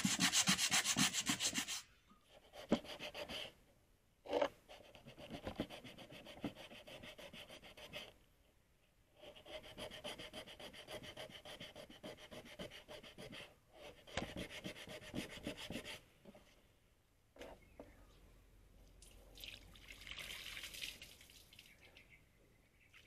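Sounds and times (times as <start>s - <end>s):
sandpaper rasping on plastic: 0.0s - 1.8s, 9.3s - 16.0s.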